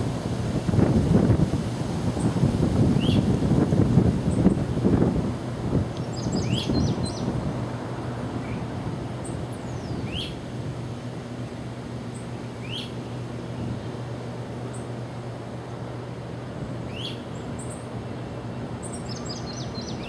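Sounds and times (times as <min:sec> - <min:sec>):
locomotive engine hum: 0:00.0 - 0:20.0
wind rumbling on microphone: 0:00.0 - 0:20.0
birds calling: 0:06.0 - 0:07.4, 0:08.4 - 0:10.5, 0:12.1 - 0:15.0, 0:16.7 - 0:20.0
bird rising call: 0:09.6 - 0:10.4, 0:12.1 - 0:13.2, 0:16.9 - 0:17.9.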